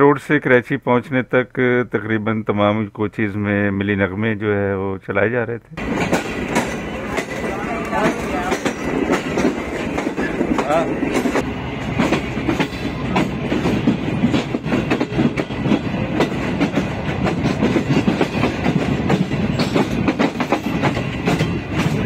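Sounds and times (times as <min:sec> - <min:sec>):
steady train rumble: 0:05.8 - 0:22.0
train wheels clattering over rail joints: 0:05.8 - 0:22.0.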